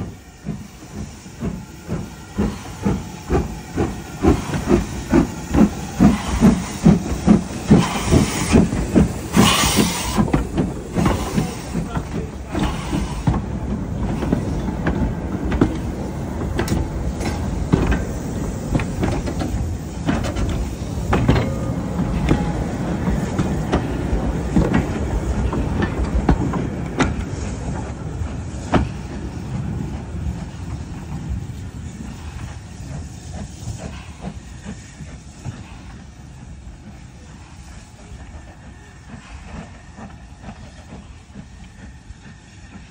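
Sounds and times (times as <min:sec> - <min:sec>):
goods train wagons rumbling: 0:00.0 - 0:42.9
wheels clacking and knocking: 0:00.4 - 0:28.0.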